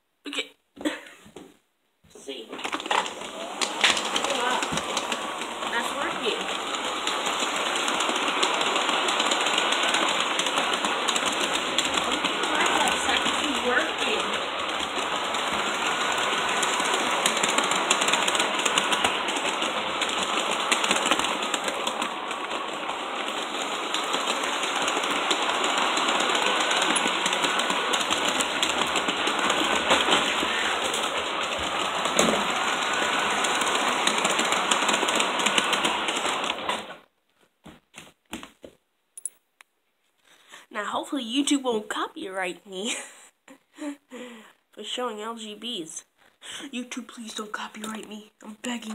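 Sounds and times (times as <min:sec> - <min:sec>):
model train rattling on track: 0:02.5 - 0:37.0.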